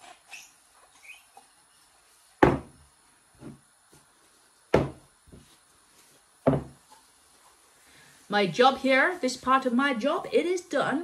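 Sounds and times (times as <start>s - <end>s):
glass knocking on wooden table: 6.5s - 6.8s.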